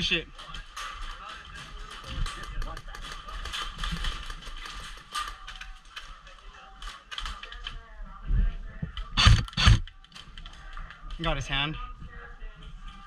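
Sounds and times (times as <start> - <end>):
gear and rifle clicks and rattles: 0.3 - 7.9, 9.0 - 11.6.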